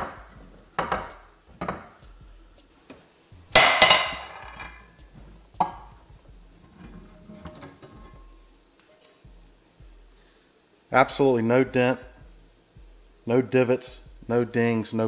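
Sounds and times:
metal pans set on countertop: 0.0s - 2.0s, 3.6s - 4.9s, 6.6s - 9.2s
loud ringing clank: 3.6s - 4.4s.

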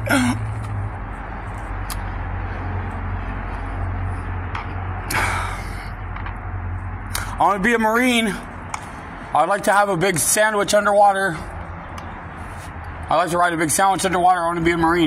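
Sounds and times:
steady low hum: 0.0s - 10.1s.

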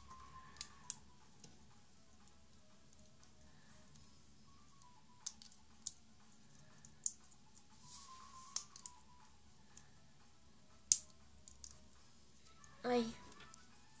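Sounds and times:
plastic toy bricks clicking: 8.5s - 9.0s.

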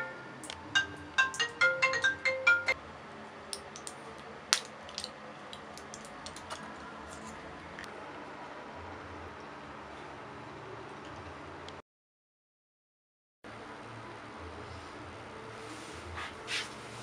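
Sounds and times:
bright plinking melody: 0.0s - 2.8s.

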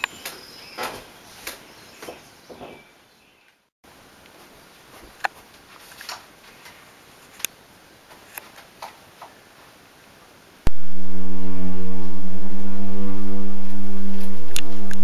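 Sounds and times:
loud music: 10.7s - 15.0s.

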